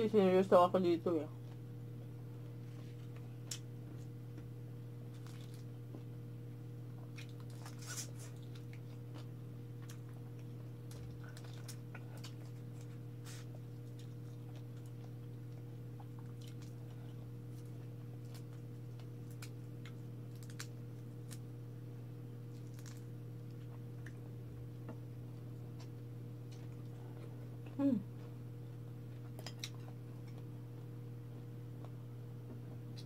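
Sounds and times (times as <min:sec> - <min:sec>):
steady low hum: 0:00.0 - 0:33.0
chewing: 0:05.1 - 0:06.1, 0:06.9 - 0:21.4, 0:22.5 - 0:24.3, 0:29.1 - 0:33.0.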